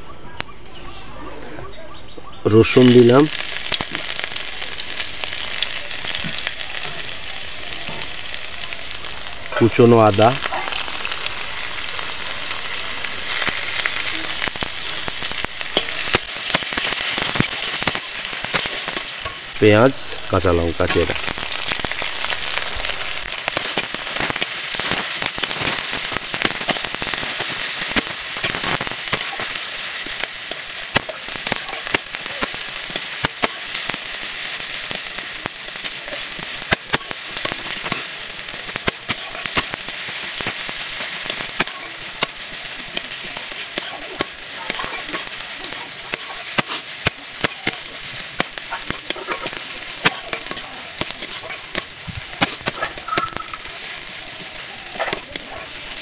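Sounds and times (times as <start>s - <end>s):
vegetables sizzling in oil: 2.6s - 56.0s
spatula stirring in pan: 38.8s - 56.0s.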